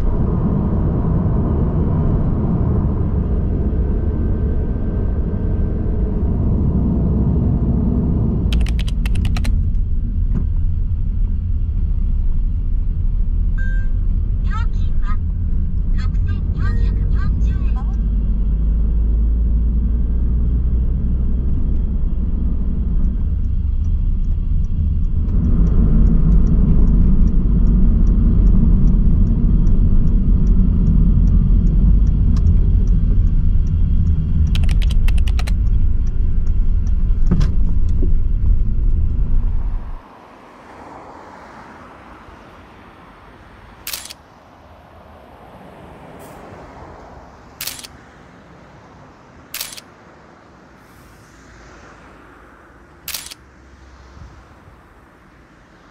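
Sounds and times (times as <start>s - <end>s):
car cabin road and engine rumble: 0.0s - 55.9s
light regular ticking: 8.5s - 9.8s, 21.7s - 38.0s
sharp clicks: 8.5s - 9.8s, 31.2s - 37.0s, 43.9s - 44.2s, 47.6s - 48.0s, 49.5s - 49.9s, 53.1s - 53.4s.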